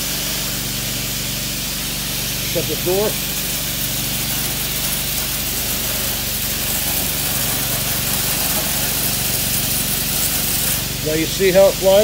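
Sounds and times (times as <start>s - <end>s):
small engine running: 0.0s - 12.0s
water spray hissing: 0.0s - 12.0s.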